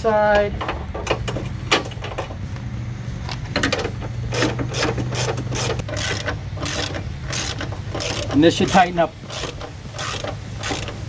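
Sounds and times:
socket ratchet clicking: 0:03.7 - 0:11.0.

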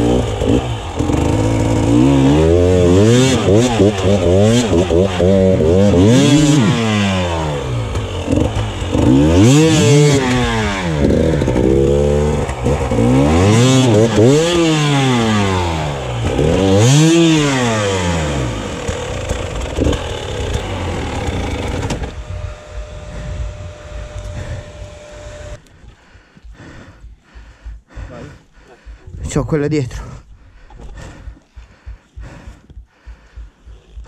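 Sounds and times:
motorcycle engine revving: 0:00.0 - 0:25.7.

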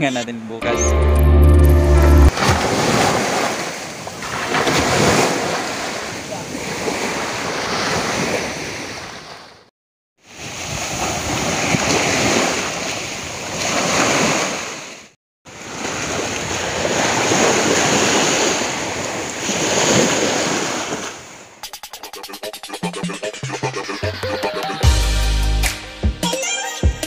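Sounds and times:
small waves washing on beach: 0:02.3 - 0:09.6, 0:10.2 - 0:21.5.

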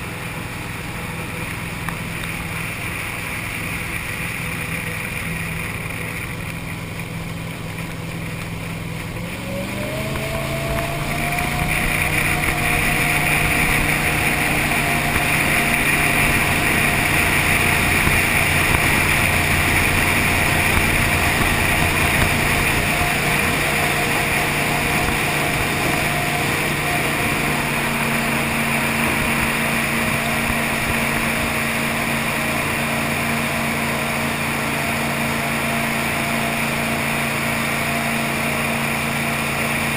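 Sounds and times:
boat engine running: 0:00.0 - 0:39.9
loud steady hiss: 0:10.7 - 0:39.9.

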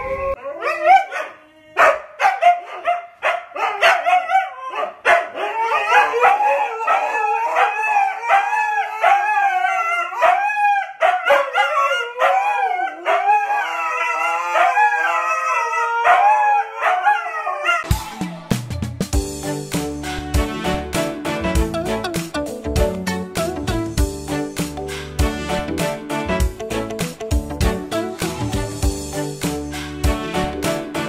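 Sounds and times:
huskies howling: 0:04.1 - 0:17.9.

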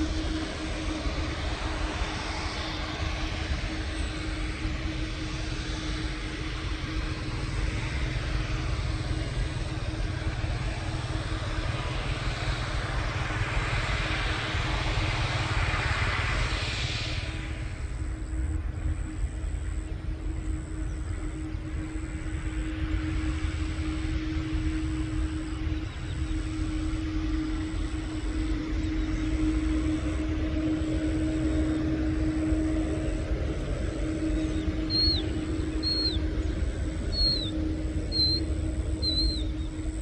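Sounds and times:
jet engines rumbling: 0:00.0 - 0:40.0
bird chirping: 0:34.4 - 0:39.9.

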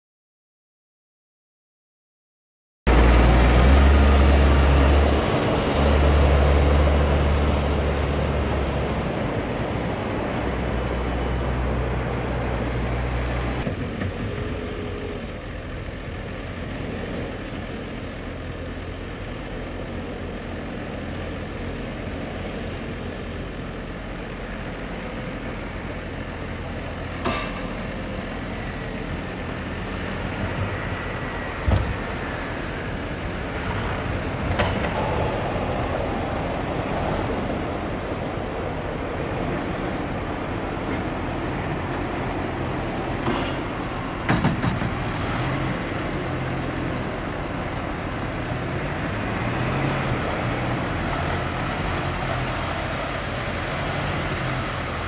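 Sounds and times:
tractor engines passing: 0:02.9 - 0:55.0
sharp knocks: 0:44.2 - 0:45.1.

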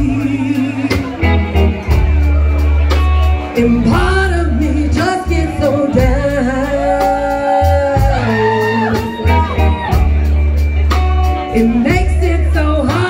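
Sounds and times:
woman singing into a microphone: 0:00.0 - 0:01.2, 0:03.6 - 0:09.8, 0:11.5 - 0:13.0
bass: 0:00.0 - 0:13.0
drums: 0:00.0 - 0:13.0
guitar: 0:00.0 - 0:13.0.

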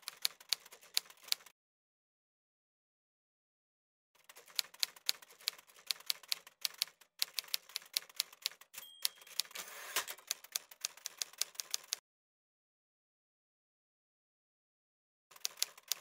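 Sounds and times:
typewriter bell ding: 0:08.7 - 0:10.2
typewriter carriage sliding back: 0:09.5 - 0:10.2.

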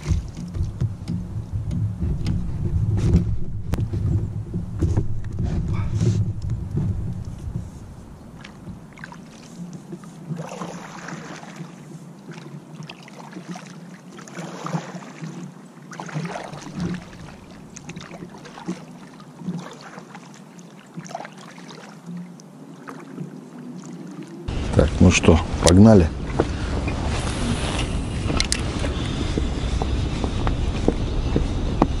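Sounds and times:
paddle splashing into water: 0:00.0 - 0:28.7.

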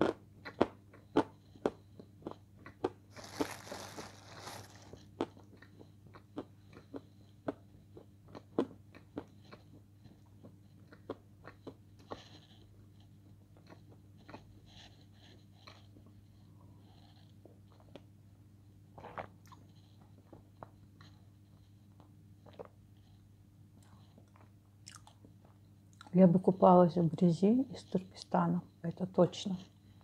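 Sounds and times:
crunchy bites and chewing: 0:00.0 - 0:09.6.

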